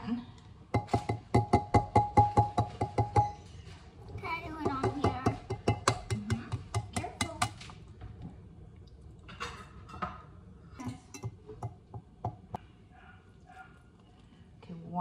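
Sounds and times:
egg tapping on ceramic bowl: 0.8s - 3.4s, 4.6s - 7.6s, 10.8s - 12.6s.

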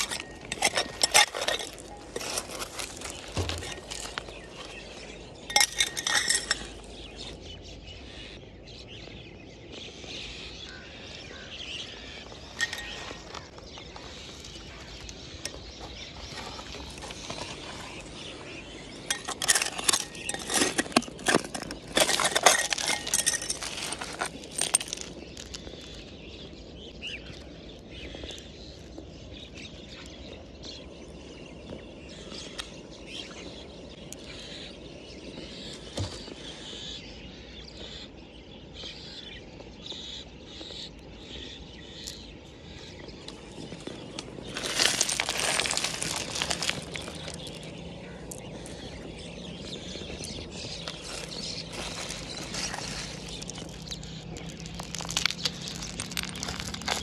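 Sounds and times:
metal scraper raking gravel: 0.0s - 7.2s, 12.6s - 13.2s, 16.3s - 25.7s, 44.3s - 47.9s, 50.0s - 57.0s
stones clinking and rattling: 0.0s - 7.4s, 12.5s - 26.2s, 43.7s - 57.0s.

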